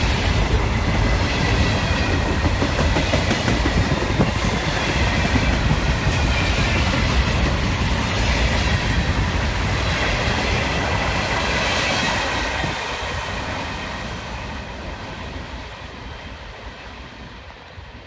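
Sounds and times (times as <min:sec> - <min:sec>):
freight train wheels on rails: 0:00.0 - 0:18.0.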